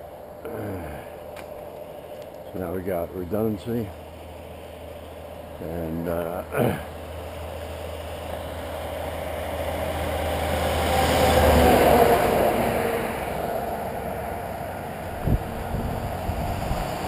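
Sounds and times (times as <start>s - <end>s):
car passing: 6.8s - 17.0s.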